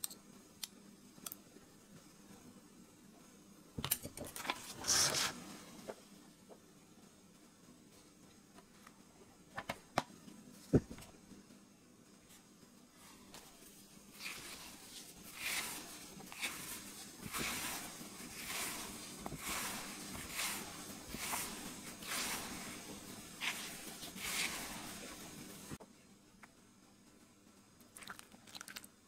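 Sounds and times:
fingers rubbing flour in bowl: 0:13.3 - 0:25.8.

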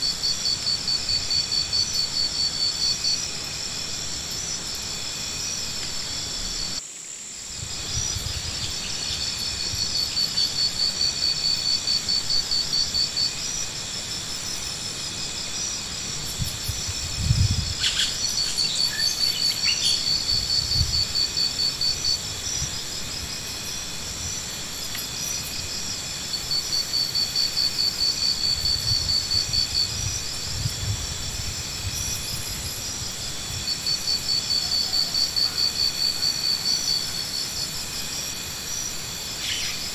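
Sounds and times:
insects chirping: 0:00.0 - 0:39.9.

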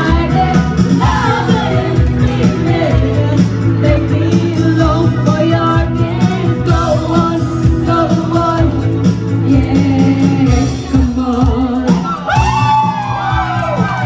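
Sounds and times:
woman singing into a microphone: 0:00.0 - 0:12.6
amplified backing track with bass: 0:00.0 - 0:14.0
people whooping and cheering: 0:11.8 - 0:14.0.

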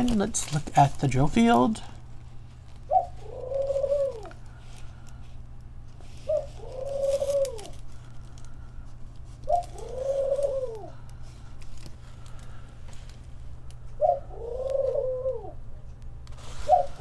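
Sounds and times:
steady low hum: 0:00.0 - 0:17.0
dove cooing: 0:02.7 - 0:05.2, 0:06.0 - 0:12.8, 0:13.7 - 0:15.8, 0:16.4 - 0:17.0.

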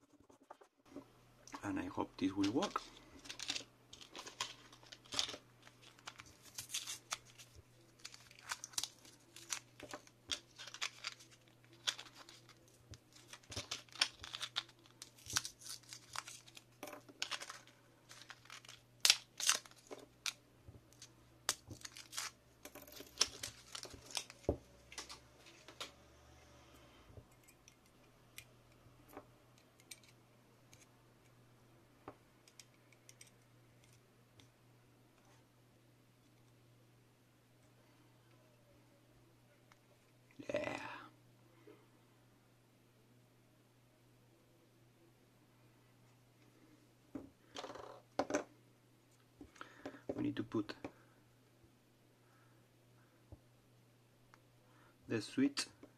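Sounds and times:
blister pack crinkling and tearing: 0:02.4 - 0:22.4, 0:23.0 - 0:25.6.

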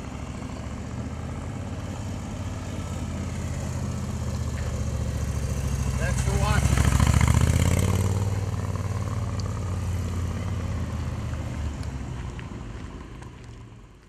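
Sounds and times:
motorcycle passing by: 0:00.0 - 0:13.9.

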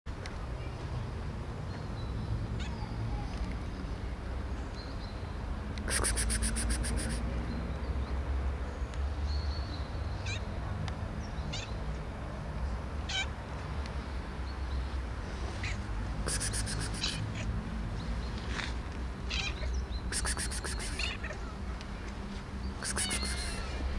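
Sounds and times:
cat meowing: 0:22.8 - 0:23.8.

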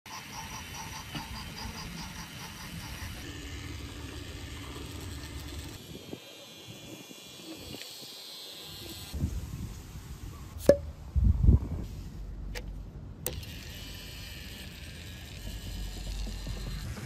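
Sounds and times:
motor hum: 0:00.1 - 0:09.2, 0:12.4 - 0:17.0
toy trains rolling on track: 0:00.1 - 0:09.2, 0:13.3 - 0:17.0.

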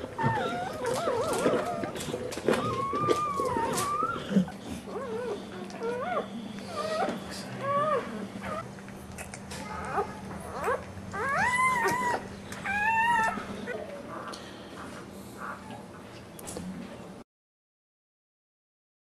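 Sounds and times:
puppies squeaking and whining: 0:00.0 - 0:14.4.

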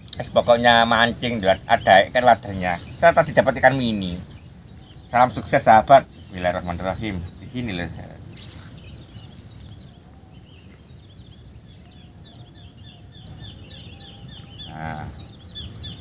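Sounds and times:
high insect drone: 0:00.0 - 0:16.0
wind rumble on microphone: 0:00.0 - 0:16.0
small high chirps: 0:08.1 - 0:16.0.

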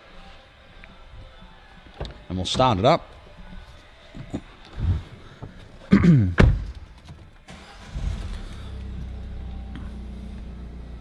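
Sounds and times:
diesel engine starting and idling: 0:07.4 - 0:11.0.

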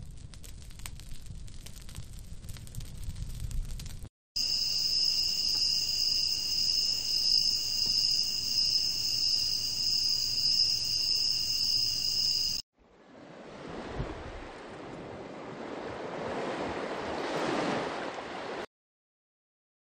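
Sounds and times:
crickets chirring: 0:04.4 - 0:12.6
sea surf rushing: 0:12.0 - 0:18.7.

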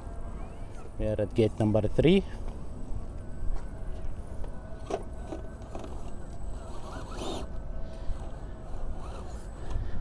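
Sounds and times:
raspy motor whir: 0:00.0 - 0:01.1, 0:03.2 - 0:10.0.

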